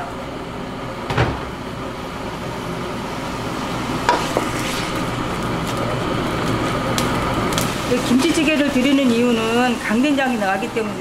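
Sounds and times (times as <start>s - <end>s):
meat sizzling in a wok: 3.0s - 11.0s.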